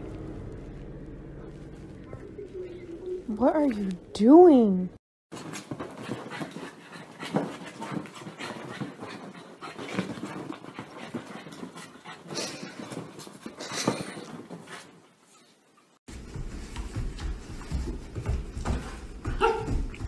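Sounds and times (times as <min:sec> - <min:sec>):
dog panting: 0:05.4 - 0:15.2.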